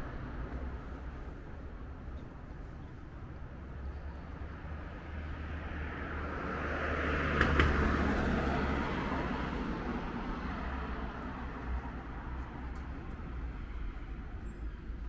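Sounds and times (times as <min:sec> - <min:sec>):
car passing by: 0:05.0 - 0:14.0.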